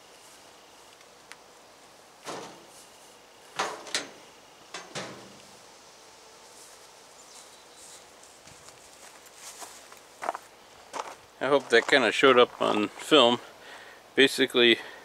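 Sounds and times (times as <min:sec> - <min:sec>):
dryer knocks and clunks: 0:02.2 - 0:02.7, 0:03.6 - 0:05.4.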